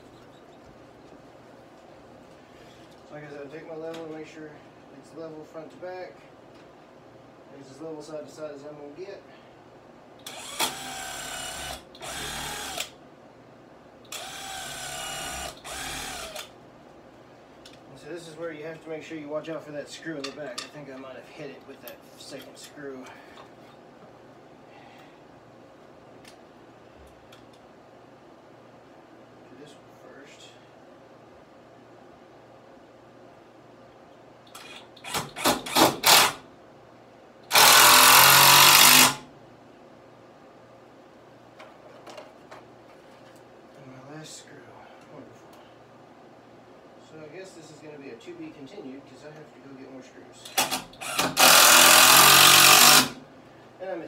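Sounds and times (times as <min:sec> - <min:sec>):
cordless drill driving screws: 0:10.2 - 0:12.9, 0:14.1 - 0:16.5, 0:34.6 - 0:36.4, 0:37.5 - 0:39.2, 0:50.6 - 0:53.2.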